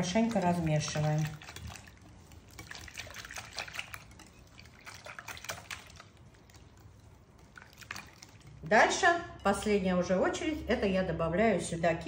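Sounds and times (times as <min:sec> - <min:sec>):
whisk beating batter: 0:00.0 - 0:08.6.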